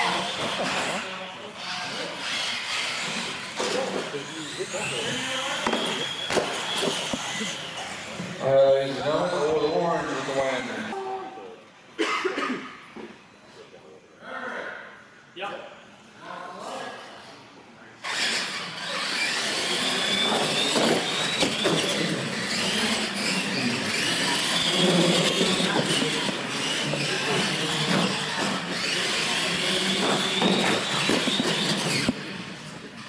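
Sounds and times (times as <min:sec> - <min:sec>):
toy truck motor and gear whine: 0:00.0 - 0:11.0, 0:18.0 - 0:33.0.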